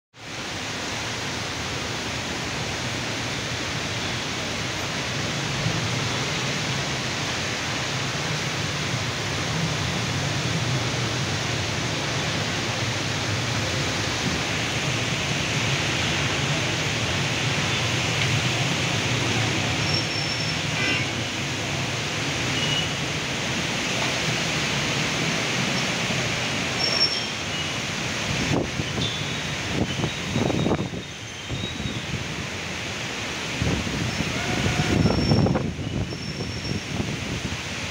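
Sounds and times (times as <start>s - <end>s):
heavy rain pouring: 0.2s - 37.9s
wind blowing: 32.0s - 37.9s.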